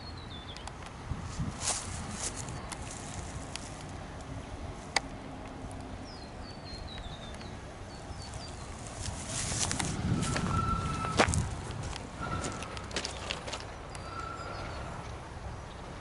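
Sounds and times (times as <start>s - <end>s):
bird chirping: 0.0s - 0.7s, 6.0s - 8.8s, 10.2s - 11.3s, 12.2s - 16.0s
footsteps and scuffing: 1.3s - 3.8s, 8.8s - 13.7s.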